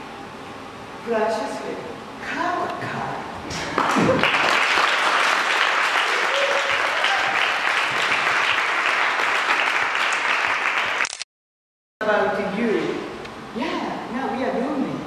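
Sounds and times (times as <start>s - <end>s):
audience applauding: 3.7s - 11.1s.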